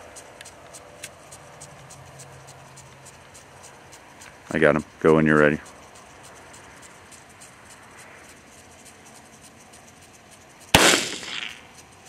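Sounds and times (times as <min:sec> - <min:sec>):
rifle shot with echo: 0:10.8 - 0:11.6.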